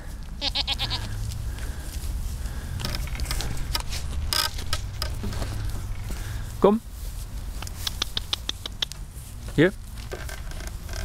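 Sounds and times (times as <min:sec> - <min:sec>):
steady low rumble: 0:00.0 - 0:10.0
scattered clicks: 0:07.6 - 0:09.0.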